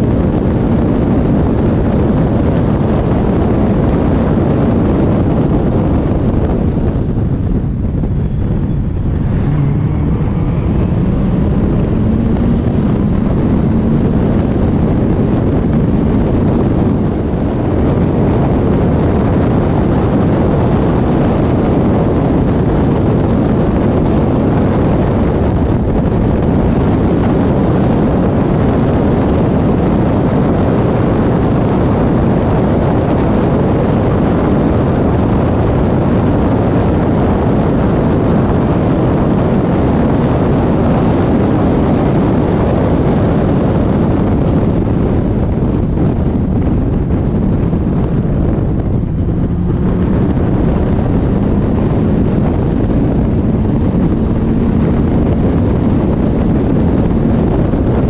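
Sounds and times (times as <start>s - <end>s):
car engine at full throttle: 0.0s - 58.0s
wind buffeting microphone: 0.0s - 58.0s.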